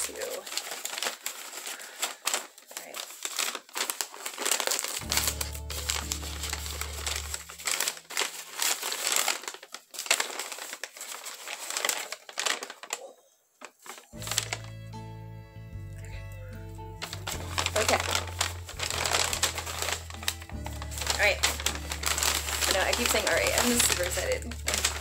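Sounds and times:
packing paper crumpling: 0:00.0 - 0:14.9, 0:17.0 - 0:25.0
background music low notes: 0:05.0 - 0:08.7, 0:14.2 - 0:25.0.

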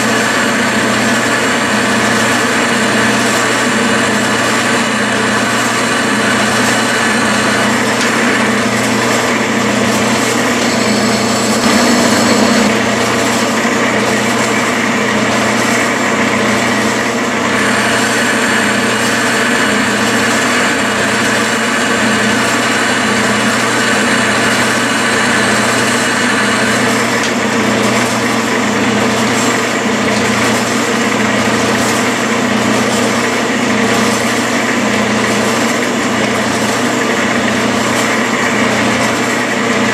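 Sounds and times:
metal lathe cutting threads: 0:00.0 - 0:39.9
high-pitched cutting note: 0:10.4 - 0:13.0.

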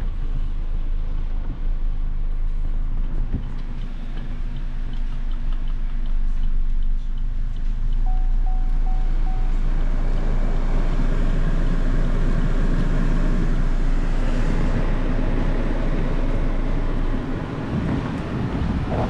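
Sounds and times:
car engine idling: 0:00.0 - 0:19.0
dashboard chime beeps: 0:08.1 - 0:09.5
climate control fan blowing: 0:08.1 - 0:19.0.

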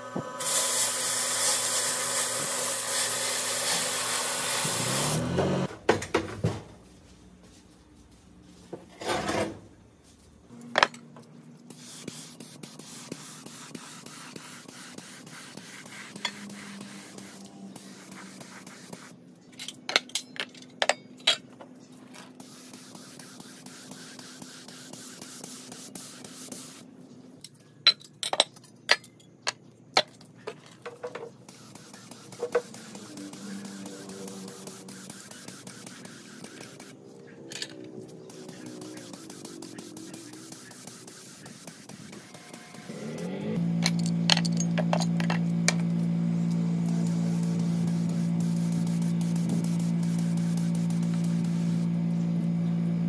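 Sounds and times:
metal parts clinking and scraping: 0:19.5 - 0:21.6, 0:37.5 - 0:37.9, 0:43.8 - 0:45.4.

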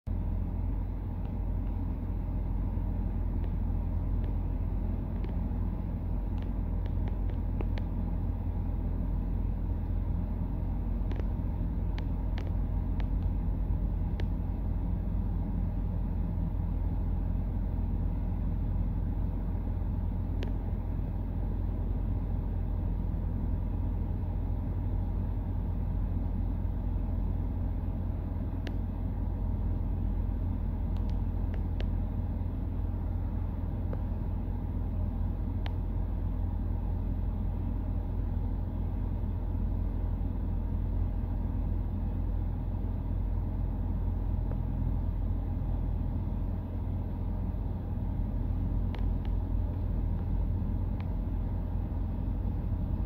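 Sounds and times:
car engine idling: 0:00.0 - 0:53.0
faint light clicks: 0:30.9 - 0:32.0.

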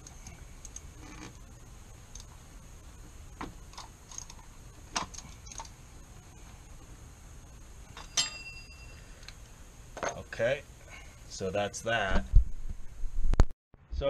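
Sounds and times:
sharp ringing metal clink: 0:08.0 - 0:09.2.

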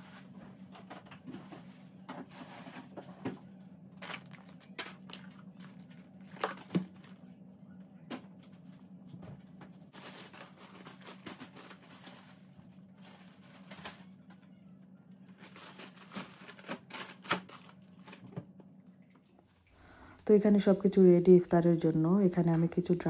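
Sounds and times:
steady low hum: 0:00.0 - 0:23.0
plastic packaging rustling: 0:04.0 - 0:07.3, 0:09.9 - 0:14.5, 0:15.2 - 0:18.4.

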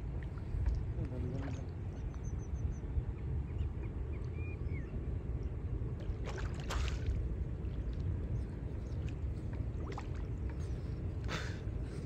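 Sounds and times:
water splashing and sloshing: 0:00.0 - 0:02.1, 0:06.0 - 0:12.0
steady low rumble: 0:00.0 - 0:12.0.

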